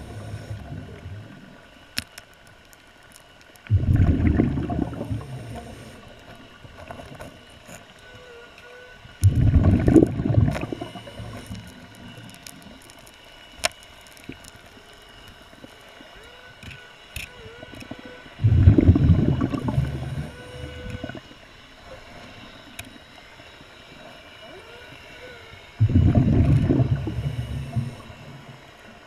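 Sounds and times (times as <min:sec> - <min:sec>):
underwater breath bubbling: 0:00.0 - 0:01.7, 0:03.7 - 0:07.5, 0:09.2 - 0:13.0, 0:17.4 - 0:21.3, 0:24.6 - 0:28.7.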